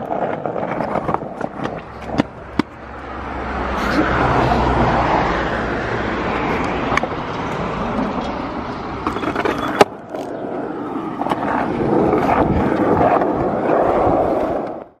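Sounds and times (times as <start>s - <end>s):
skateboard sharp clack: 0.0s - 2.8s
skateboard wheels rolling on concrete: 0.0s - 15.0s.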